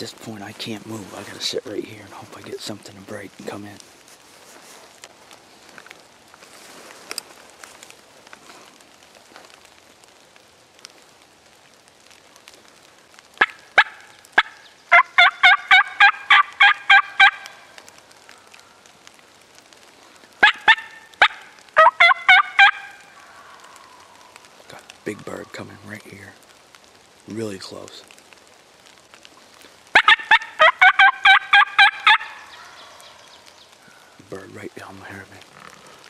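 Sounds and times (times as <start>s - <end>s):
turkey call clucks: 13.4s - 17.7s, 20.4s - 24.4s, 29.9s - 33.3s
turkey call yelps: 13.4s - 17.8s, 20.4s - 24.4s, 29.9s - 34.1s.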